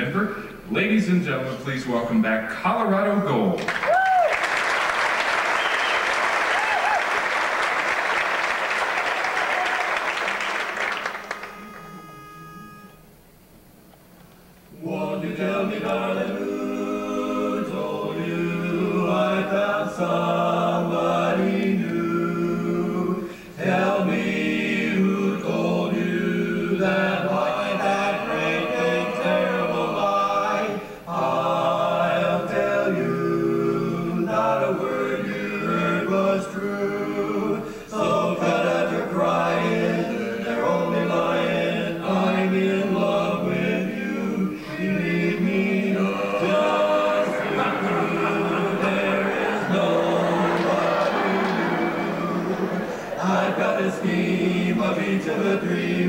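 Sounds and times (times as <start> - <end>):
male quartet singing a cappella: 14.7 - 56.0.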